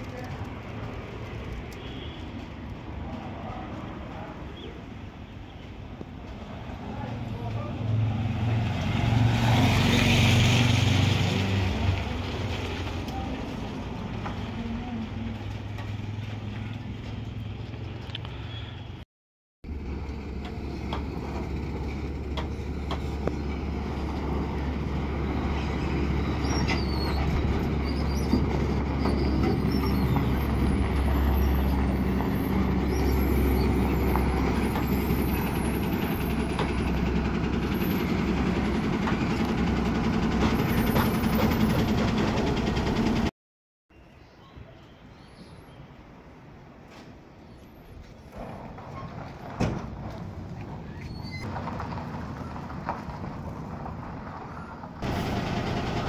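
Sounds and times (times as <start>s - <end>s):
truck diesel engine running: 19.7s - 43.3s, 51.5s - 56.0s.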